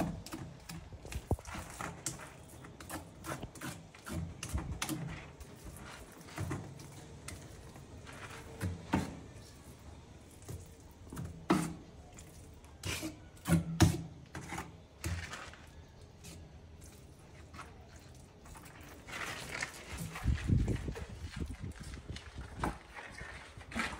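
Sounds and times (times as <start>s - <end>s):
trowel scraping tile adhesive: 1.4s - 7.5s.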